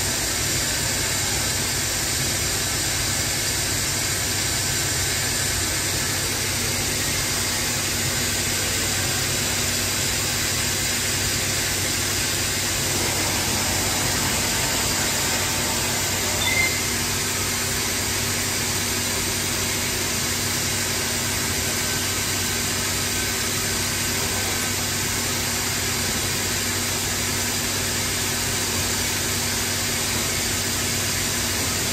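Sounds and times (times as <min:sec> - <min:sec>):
cnc router running: 0:00.1 - 0:31.9
dust extraction noise: 0:11.0 - 0:20.0.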